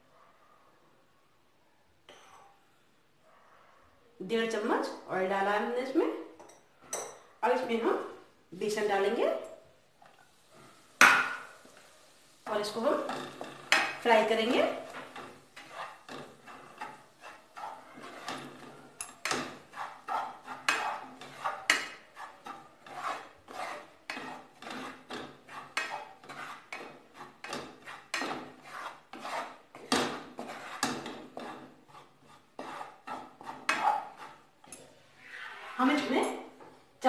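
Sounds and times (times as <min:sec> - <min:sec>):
spatula scraping frying pan: 0:10.2 - 0:36.8.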